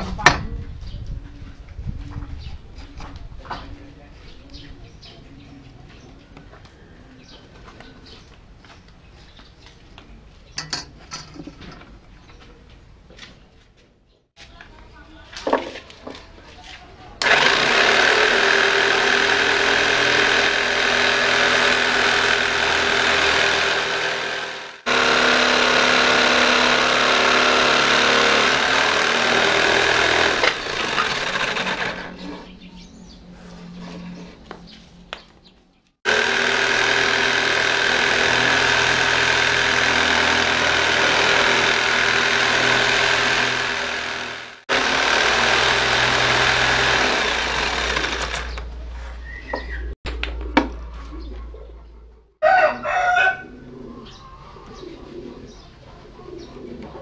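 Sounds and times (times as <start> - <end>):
electric drill motor whining: 17.2 - 32.3, 36.1 - 48.7.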